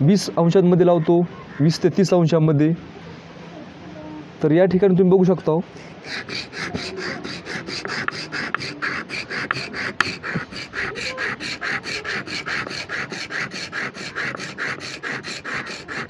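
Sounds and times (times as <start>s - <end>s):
blade rasping on sharpening stone: 6.0s - 16.0s.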